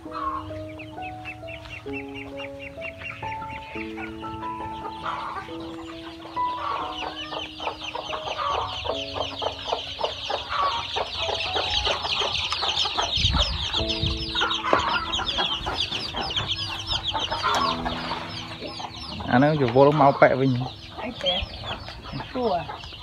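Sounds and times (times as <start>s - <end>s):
chicks peeping: 0.0s - 23.0s.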